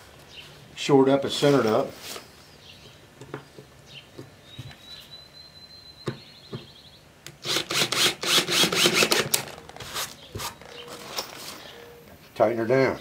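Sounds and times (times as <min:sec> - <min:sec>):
cordless drill driving screw: 0:07.4 - 0:10.2.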